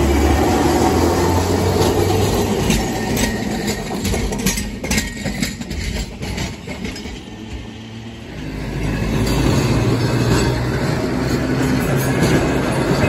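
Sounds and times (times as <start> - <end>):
streetcar rolling by with low hum: 0.0 - 13.0
streetcar wheels clicking over rail joints: 0.0 - 13.0.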